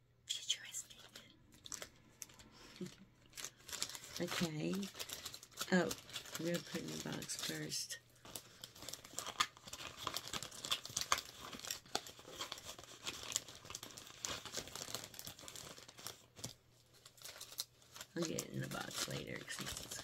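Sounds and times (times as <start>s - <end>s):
packaging crinkling and rustling: 0.6s - 20.0s.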